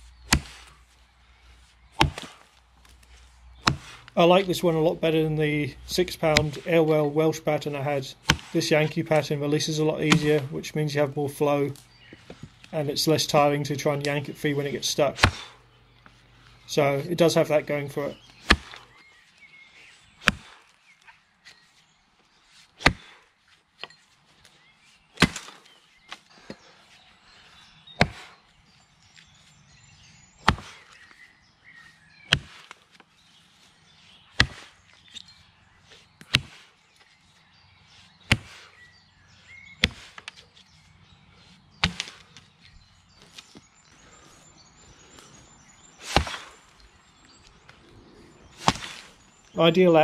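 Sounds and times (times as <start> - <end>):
axe chopping into log: 0.2 - 0.8, 1.9 - 2.5, 3.6 - 4.0, 6.3 - 6.6, 8.2 - 8.6, 10.0 - 10.5, 15.2 - 15.6, 18.4 - 18.9, 20.2 - 20.6, 22.8 - 23.2, 25.2 - 25.7, 28.0 - 28.3, 30.4 - 30.9, 32.3 - 32.8, 34.4 - 34.8, 36.2 - 36.6, 38.3 - 38.6, 39.8 - 40.4, 41.8 - 42.3, 46.0 - 46.6, 48.5 - 49.1.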